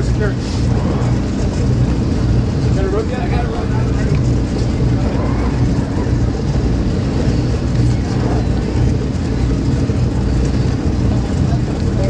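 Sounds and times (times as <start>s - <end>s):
boat engines droning: 0.0s - 12.0s
water noise: 0.0s - 12.0s.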